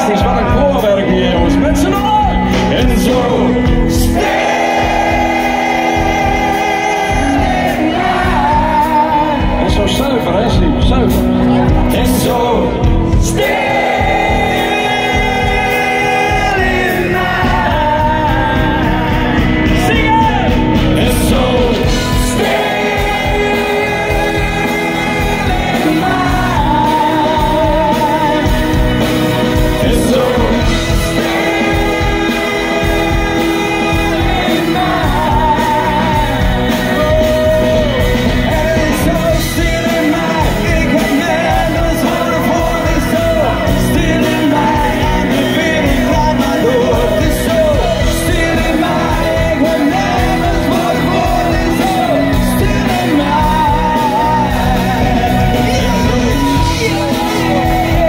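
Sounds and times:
man singing: 0.0s - 58.0s
pop-rock band playing: 0.0s - 58.0s.

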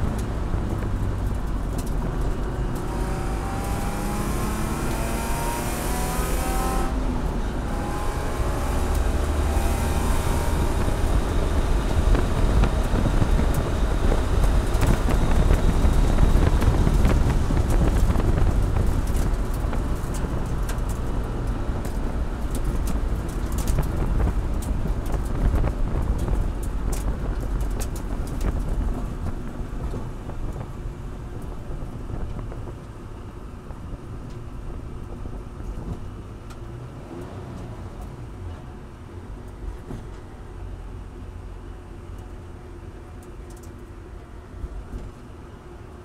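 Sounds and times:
sharp clicks and rattles: 0.1s - 3.0s, 12.1s - 30.7s
race car engine revving: 1.8s - 19.6s.

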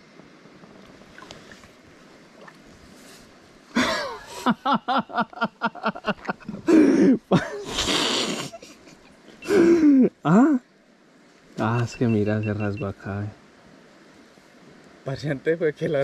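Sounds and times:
person laughing: 3.8s - 10.6s.

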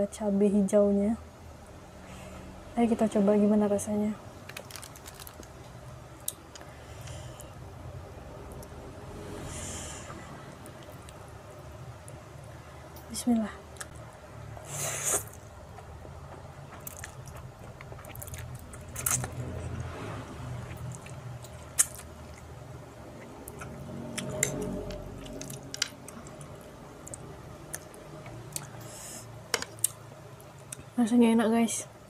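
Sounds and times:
person slurping noodles: 14.7s - 15.4s
wet chewing mouth sounds: 15.0s - 19.9s.

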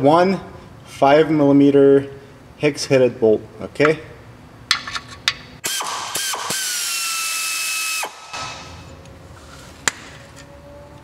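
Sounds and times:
electric ratchet motor whining: 5.6s - 8.7s.

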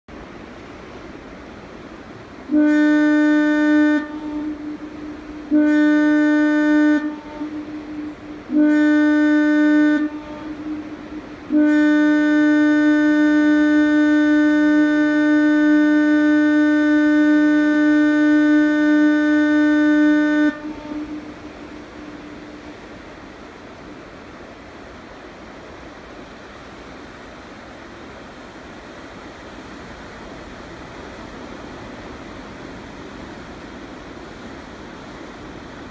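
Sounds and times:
foghorn blasts: 2.4s - 23.0s.

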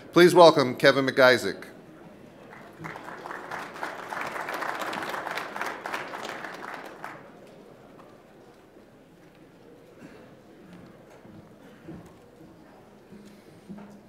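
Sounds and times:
audience applauding: 2.4s - 7.6s.

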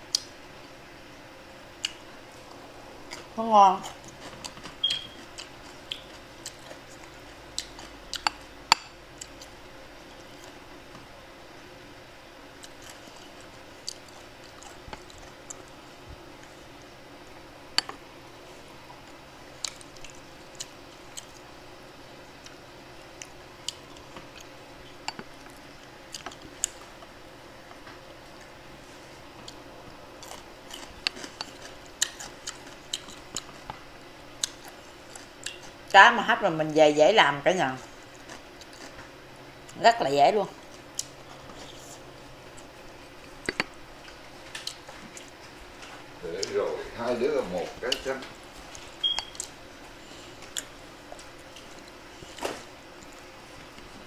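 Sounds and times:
chewing: 1.8s - 10.6s, 12.5s - 15.8s, 18.9s - 21.5s, 22.4s - 27.1s, 28.2s - 35.9s, 37.8s - 39.8s, 40.6s - 46.6s, 47.6s - 54.0s.

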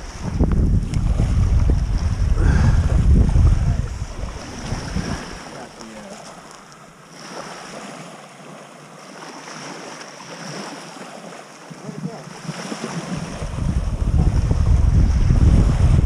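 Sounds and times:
wind buffeting microphone: 0.0s - 5.9s, 12.8s - 16.0s
small waves lapping: 0.0s - 16.0s.

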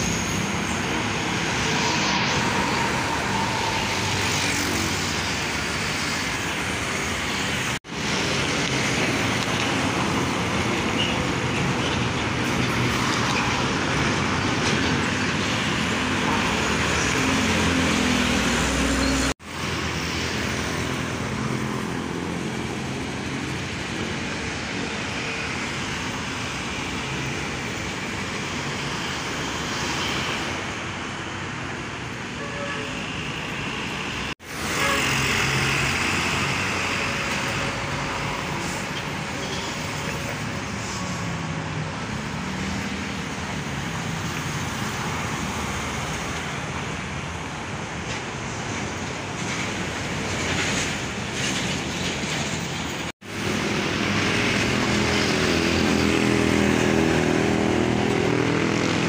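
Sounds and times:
loud engine drone: 0.0s - 11.0s, 53.2s - 59.0s
road traffic passing: 0.0s - 59.0s.

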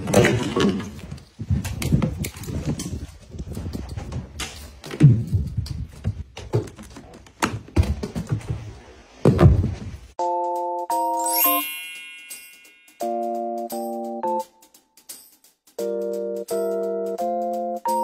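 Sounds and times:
bright chime melody: 10.9s - 14.4s.

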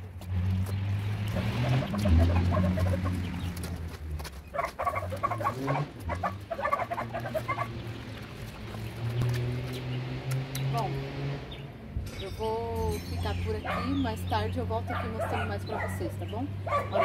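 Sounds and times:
chickens clucking: 1.2s - 9.8s.

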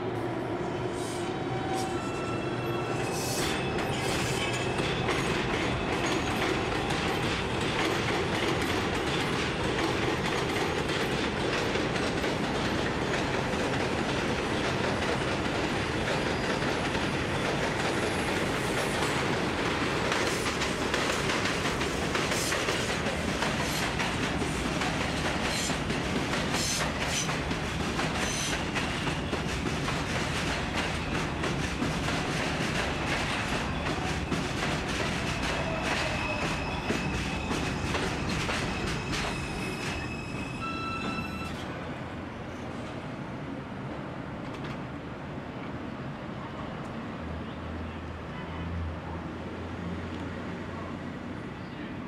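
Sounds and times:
subway train rumble: 0.0s - 52.0s
wheels clacking over rail joints: 3.8s - 40.2s.

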